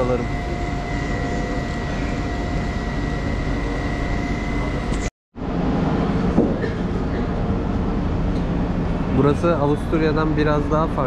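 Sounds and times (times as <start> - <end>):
electric train rumble: 0.0 - 11.0
high even whine: 0.0 - 11.0.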